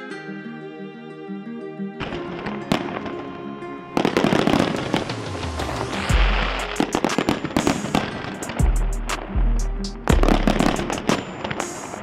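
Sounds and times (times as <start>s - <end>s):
fireworks crackling and popping: 4.0s - 9.3s, 10.2s - 12.0s
fireworks fountains hissing: 4.1s - 8.6s.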